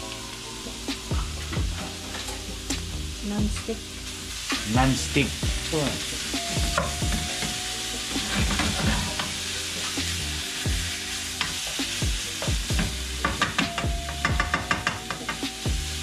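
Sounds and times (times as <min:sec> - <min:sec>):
pork sizzling in a frying pan: 0:00.0 - 0:16.0
spatula scraping a pan: 0:06.8 - 0:10.2.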